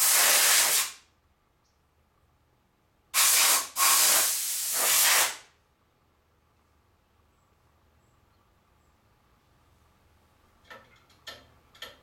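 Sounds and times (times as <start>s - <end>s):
compressed air blasts: 0.0s - 1.0s, 3.2s - 5.5s.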